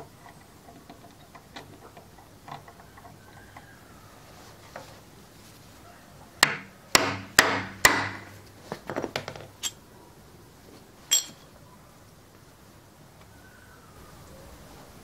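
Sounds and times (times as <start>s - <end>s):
metal clinks: 9.6s - 9.8s, 11.1s - 11.5s.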